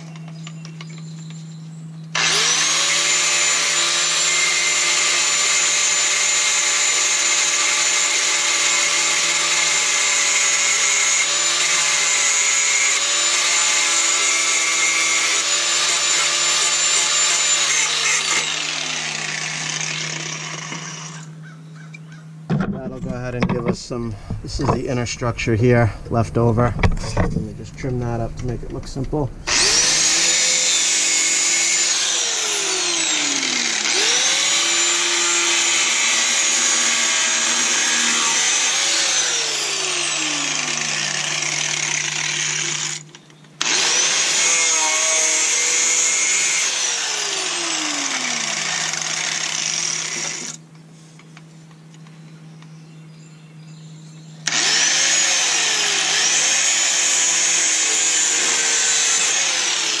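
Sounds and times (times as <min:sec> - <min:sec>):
angle grinder cutting sheet steel: 0:02.1 - 0:21.4, 0:29.5 - 0:50.6, 0:54.5 - 1:00.0.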